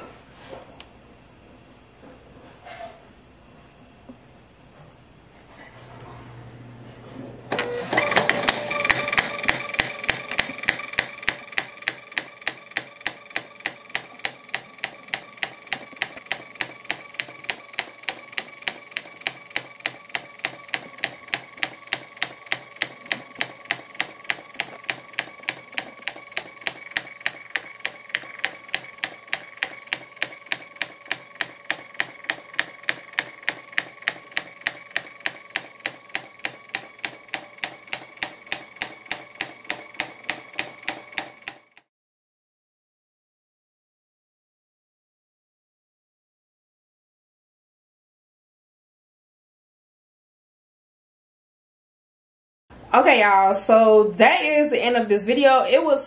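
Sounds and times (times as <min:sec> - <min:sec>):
label printer motor whine: 0:07.5 - 0:41.8
printer clicks: 0:07.5 - 0:41.8.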